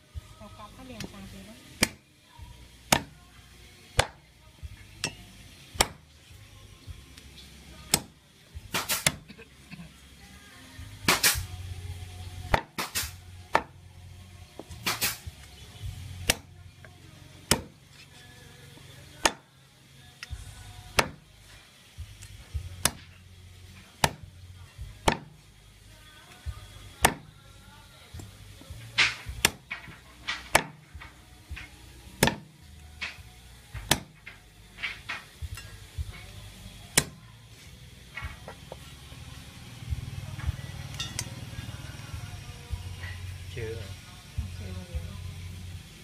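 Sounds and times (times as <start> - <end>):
cleaver chopping on wooden block: 1.8 - 2.0, 2.9 - 3.1, 5.8 - 6.0, 17.5 - 17.7, 21.0 - 21.2, 25.0 - 25.3, 27.0 - 27.3, 32.2 - 32.5, 33.8 - 34.1, 37.0 - 37.2.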